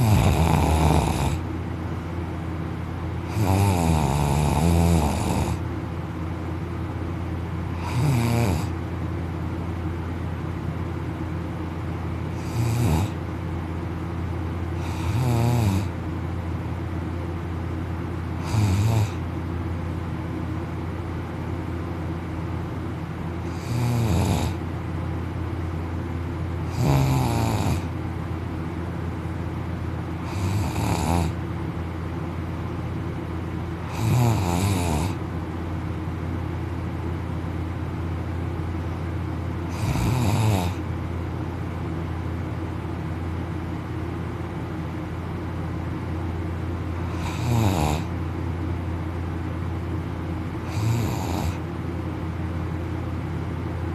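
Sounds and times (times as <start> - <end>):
man snoring loudly: 0.0 - 1.4, 3.2 - 5.6, 7.8 - 8.8, 12.3 - 13.2, 14.8 - 16.0, 18.4 - 19.2, 23.5 - 24.6, 26.7 - 27.9, 30.2 - 31.4, 33.8 - 35.2, 39.7 - 40.8, 47.1 - 48.1, 50.6 - 51.6
steady low hum: 0.0 - 53.9.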